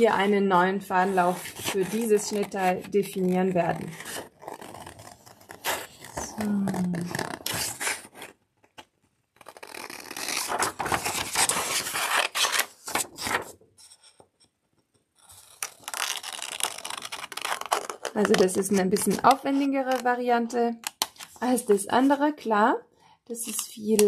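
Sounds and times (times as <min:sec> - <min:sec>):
scissors cutting paper: 0:00.9 - 0:08.3, 0:15.2 - 0:20.1
paper rustling: 0:01.1 - 0:13.6.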